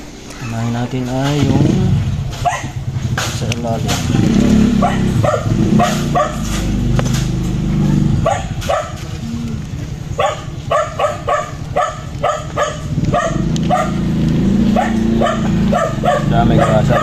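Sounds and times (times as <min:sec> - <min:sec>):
low steady hum: 0:00.0 - 0:16.2
dog barking: 0:02.3 - 0:02.8, 0:04.2 - 0:09.2, 0:10.1 - 0:17.0.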